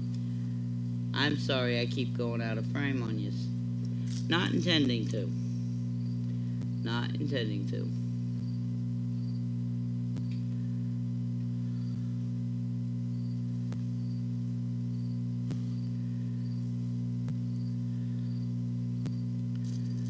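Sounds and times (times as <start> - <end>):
electrical hum: 0.0 - 20.0.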